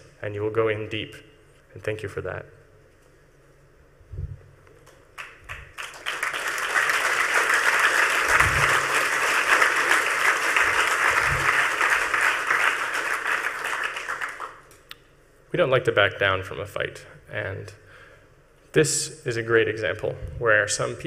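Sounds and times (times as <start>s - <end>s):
audience applauding: 5.2s - 14.7s.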